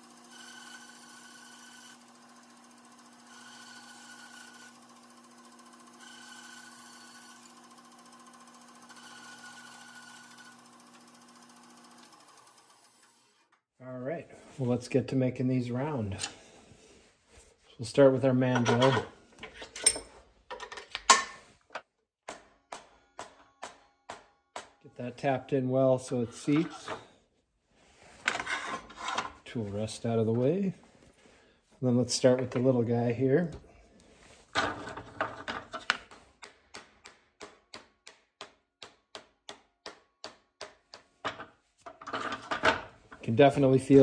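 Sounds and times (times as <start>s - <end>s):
mallet tapping wood: 36.1s - 41.1s.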